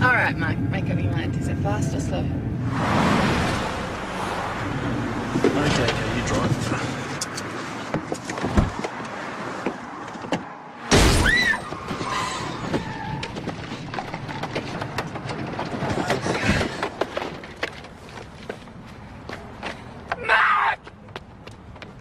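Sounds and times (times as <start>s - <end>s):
car crash impact: 10.9s - 12.1s.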